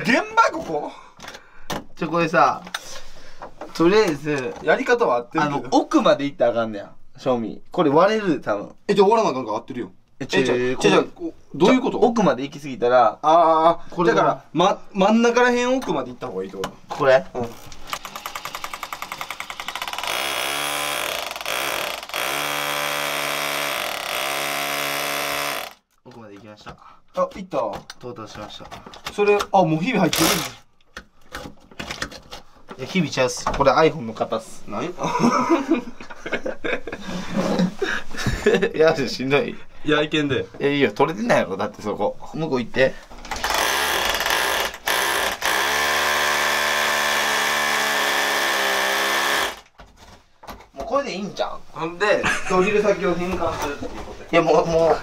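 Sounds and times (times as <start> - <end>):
power drill boring into porcelain: 17.5 - 25.8, 30.1 - 30.6, 43.4 - 49.7.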